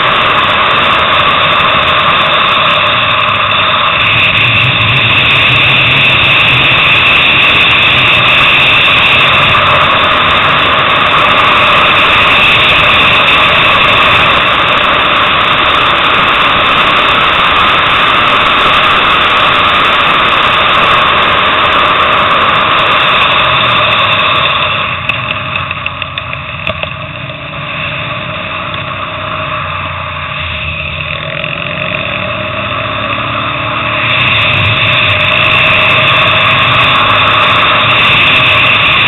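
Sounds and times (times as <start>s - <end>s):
wind rushing: 0.0s - 25.5s
motorcycle engine at speed: 0.0s - 39.0s.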